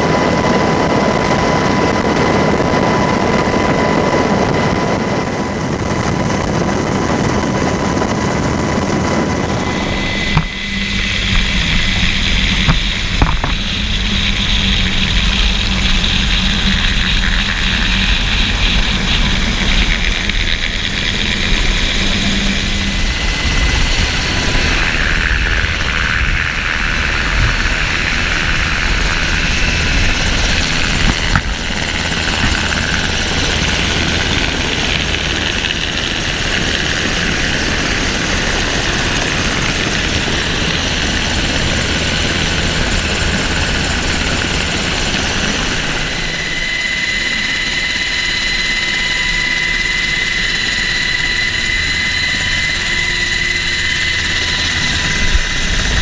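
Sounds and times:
helicopter rotors and engines: 0.0 - 56.0
thin high turbine whine: 0.0 - 56.0.

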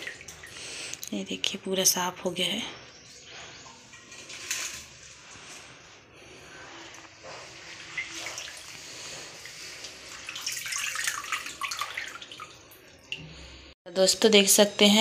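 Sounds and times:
water sloshing in a steel bowl: 0.0 - 0.6, 2.8 - 13.6.

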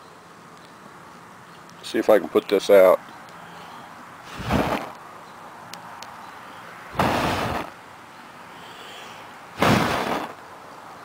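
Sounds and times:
person blowing breathy puffs: 4.2 - 4.9, 7.0 - 7.7, 8.5 - 10.4.

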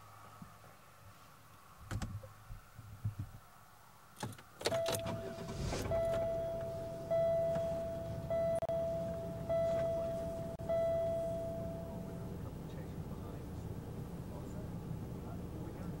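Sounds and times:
car warning chime dinging: 4.7 - 12.4.

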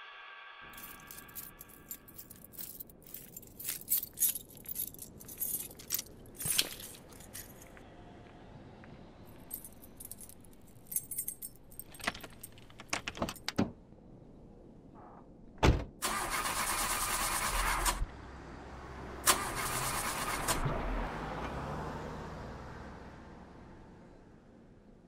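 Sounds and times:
keys jangling: 0.7 - 7.8, 9.3 - 13.6
starter cranking engine: 16.0 - 18.0, 19.3 - 20.7.

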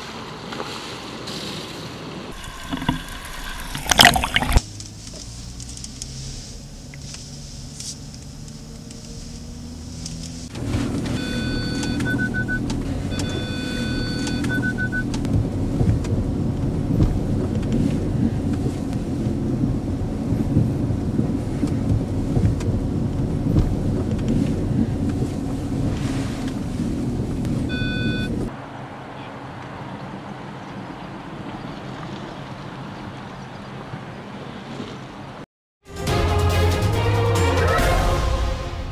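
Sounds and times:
engine and tyres rumbling: 0.0 - 37.7
parking sensor warning beeps: 11.0 - 15.2, 27.7 - 28.5.

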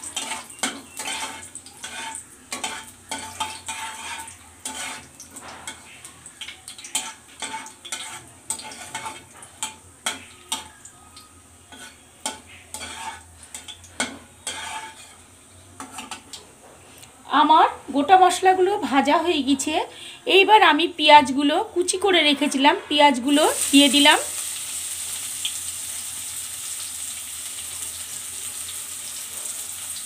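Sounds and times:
metal spatula scraping a pan: 0.0 - 6.2, 6.8 - 10.8, 11.6 - 16.3, 22.0 - 24.2
spices sizzling in oil: 0.0 - 16.4, 21.8 - 30.0.

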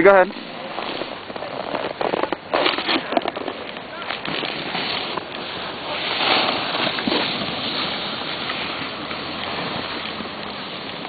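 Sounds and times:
wind on microphone: 0.0 - 11.0.

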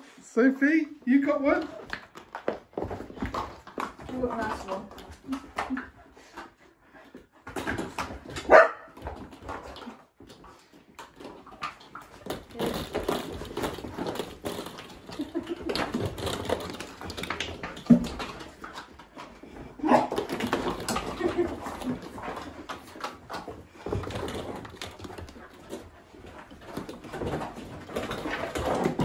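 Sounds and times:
plastic balls clattering on carpet: 1.2 - 6.5, 7.4 - 29.0
dogs barking and whining: 8.3 - 9.1, 19.6 - 23.9.

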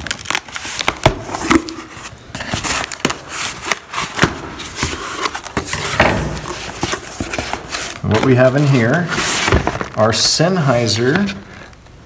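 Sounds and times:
scissors slitting packing tape: 0.0 - 1.8.

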